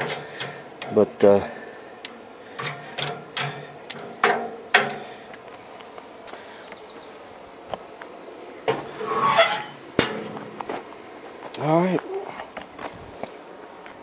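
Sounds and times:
charcoal and steel grate clanking: 0.0s - 1.4s, 2.5s - 5.1s, 8.7s - 10.5s.

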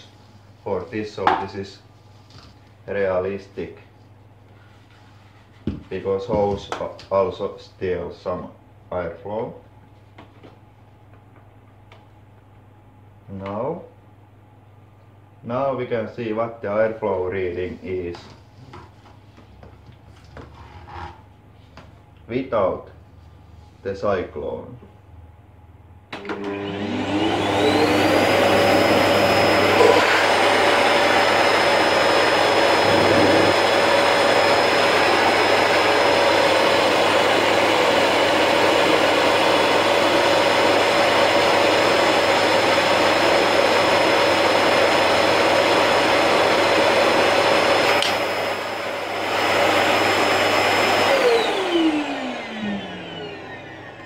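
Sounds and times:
vacuum cleaner running: 26.1s - 54.0s.

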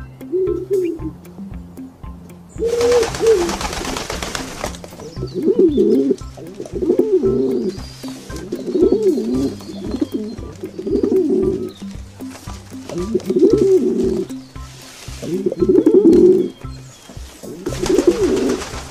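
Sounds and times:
pigeons cooing: 0.0s - 1.2s, 2.5s - 18.9s
background music: 0.0s - 18.9s.

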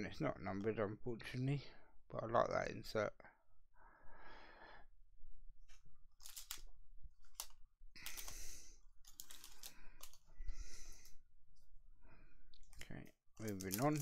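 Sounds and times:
plastic packaging crinkling: 6.2s - 8.4s, 9.0s - 10.2s, 13.4s - 14.0s.

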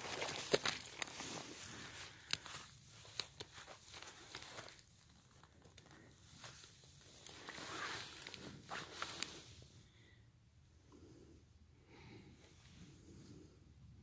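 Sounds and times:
twigs snapping: 0.0s - 1.2s.

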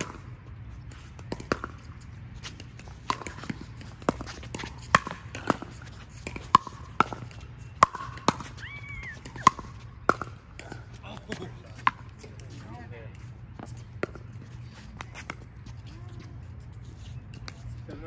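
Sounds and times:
paddles hitting plastic ball: 2.7s - 12.6s.

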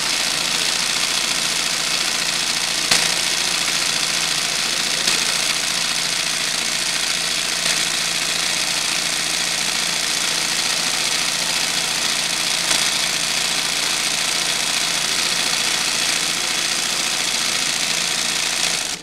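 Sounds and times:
embroidery machine stitching: 0.0s - 19.0s.

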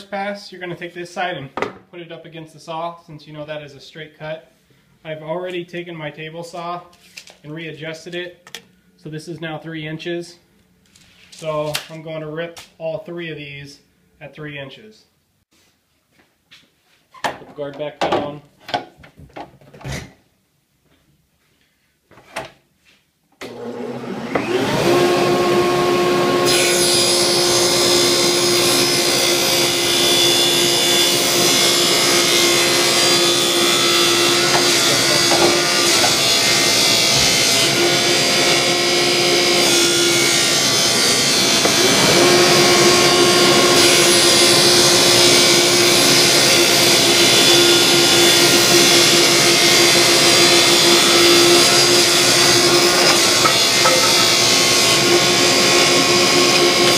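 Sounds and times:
table saw cutting wood: 23.4s - 56.9s.

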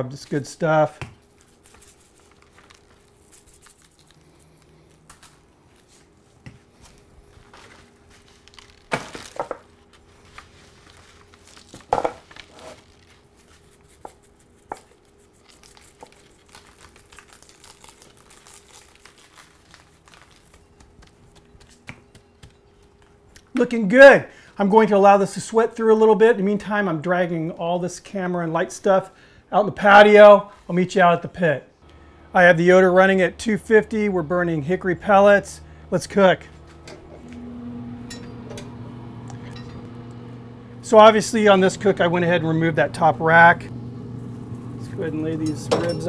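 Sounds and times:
rubber gloves and paper crinkling: 1.1s - 23.4s.

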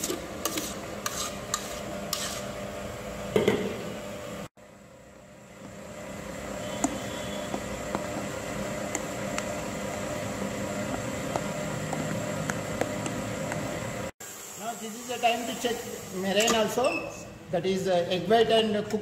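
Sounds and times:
spatula scraping metal bowl: 0.0s - 2.6s.

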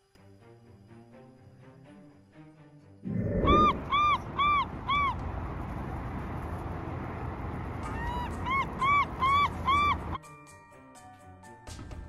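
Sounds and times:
steady background rumble: 3.1s - 10.2s
crows cawing: 3.2s - 5.3s.

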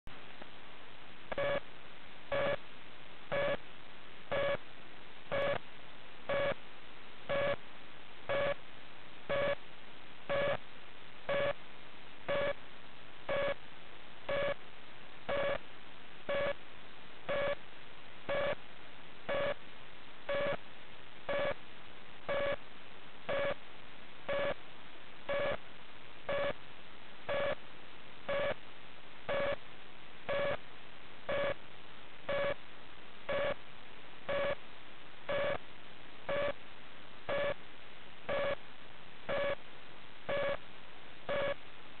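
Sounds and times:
short electronic beeps: 41.3s - 41.6s.

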